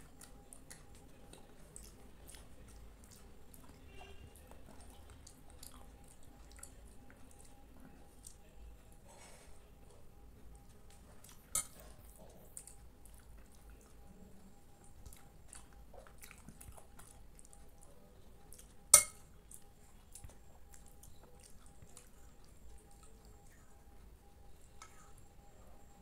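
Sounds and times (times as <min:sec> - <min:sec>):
soft eating sounds: 0:00.0 - 0:26.0
metal spoon clinking glass bowl: 0:11.5 - 0:11.8, 0:18.9 - 0:19.3.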